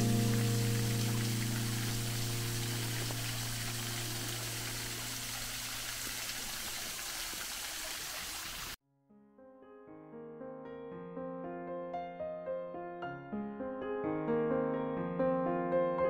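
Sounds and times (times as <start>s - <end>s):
held music chord: 0.0s - 5.4s
waterfall splashing into stream: 0.0s - 8.8s.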